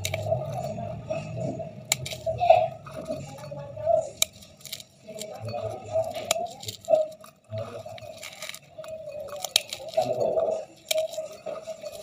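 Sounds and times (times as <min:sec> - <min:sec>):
brittle flakes crunching: 0:00.0 - 0:12.0
fragments clicking on glass: 0:04.2 - 0:12.0.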